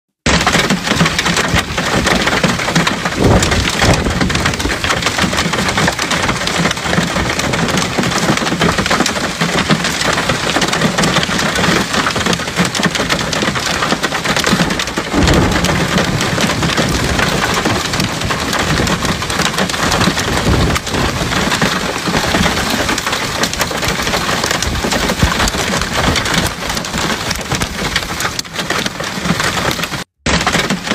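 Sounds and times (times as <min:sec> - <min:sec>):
heavy rain and hail: 0:00.2 - 0:30.9.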